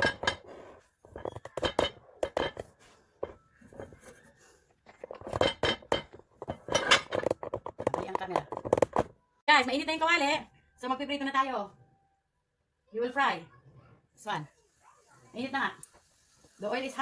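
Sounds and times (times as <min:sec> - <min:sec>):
cookware clinking on stovetop: 0:01.2 - 0:02.7, 0:05.2 - 0:07.5.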